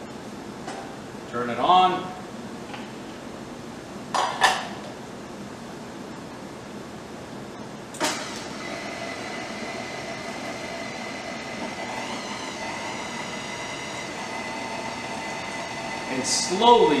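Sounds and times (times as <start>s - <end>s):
blender running with a whine: 8.1s - 17.0s.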